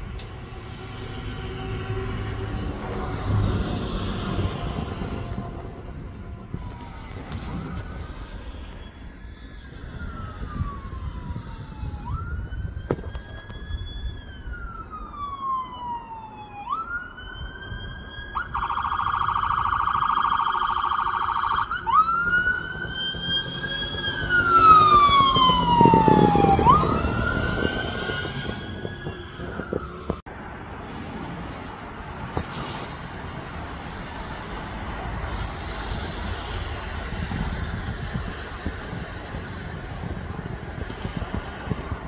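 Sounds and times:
electronic siren wailing: 0.4s - 30.2s.

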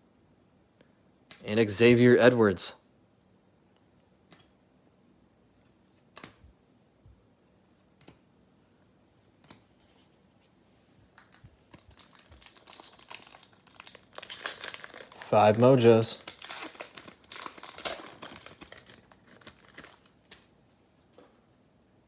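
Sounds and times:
foil pack crinkling: 11.7s - 20.5s.

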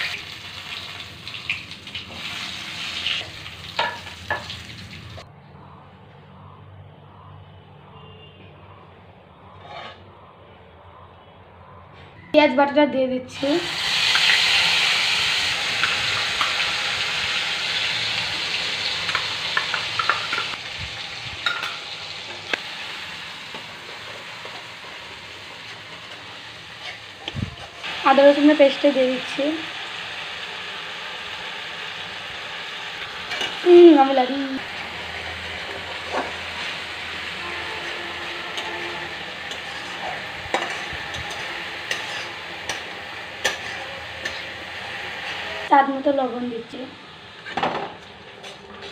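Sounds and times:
paste sizzling in hot oil: 0.0s - 5.2s, 13.4s - 45.7s
spatula scraping against pan: 9.4s - 10.2s, 37.4s - 44.6s, 48.3s - 48.9s.

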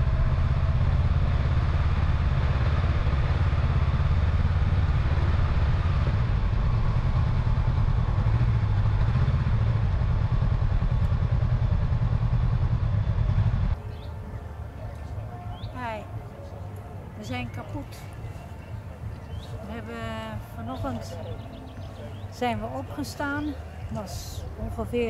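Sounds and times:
wind rush on microphone: 0.0s - 13.8s
motorcycle engine drone: 0.0s - 25.0s.

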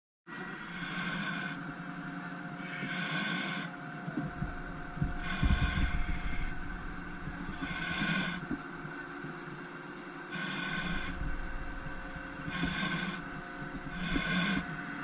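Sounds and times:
low rumbling knocks: 4.2s - 9.0s, 10.6s - 15.0s
hydraulic hissing surge: 4.3s - 8.8s, 10.3s - 15.0s.

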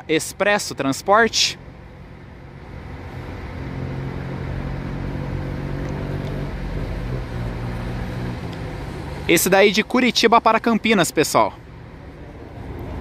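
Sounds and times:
diesel coach engine humming: 0.0s - 13.0s.

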